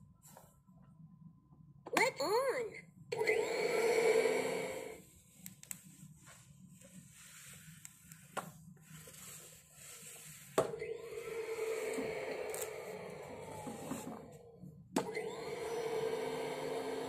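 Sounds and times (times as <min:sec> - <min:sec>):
toy vacuum cleaner hum: 0:03.2 - 0:05.0, 0:10.7 - 0:17.0.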